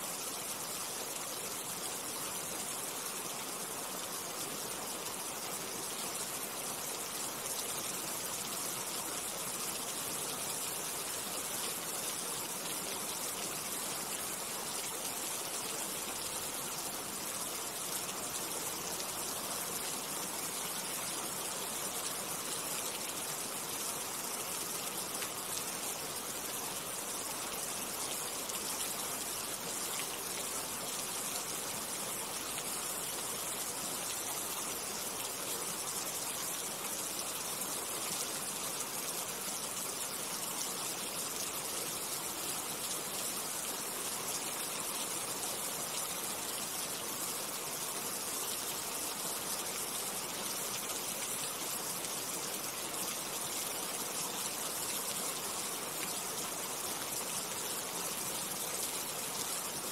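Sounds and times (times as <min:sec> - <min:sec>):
rushing water: 0:00.0 - 0:59.9.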